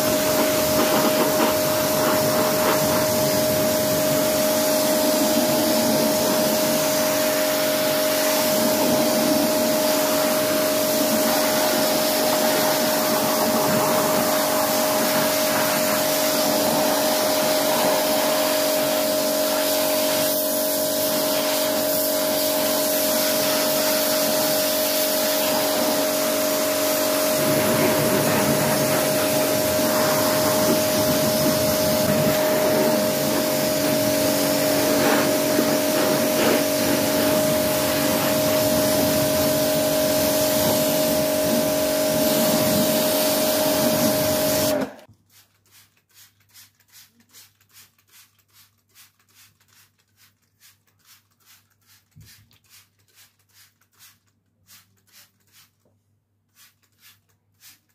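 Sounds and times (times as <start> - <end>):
pressure washer motor hum: 0.0 - 45.1
water jet hissing: 0.0 - 45.1
spray bottle squirts: 0.0 - 57.9.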